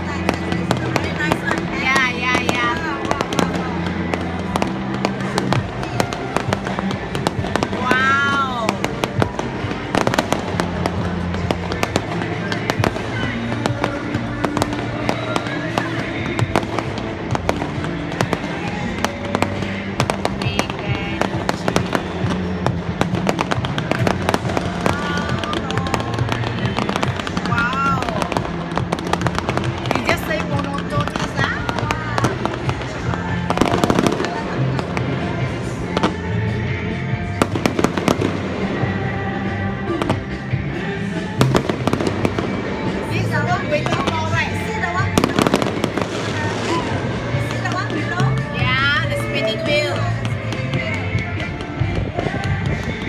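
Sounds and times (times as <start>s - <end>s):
fireworks bursting and crackling: 0.0s - 53.0s
music playing: 0.0s - 53.0s.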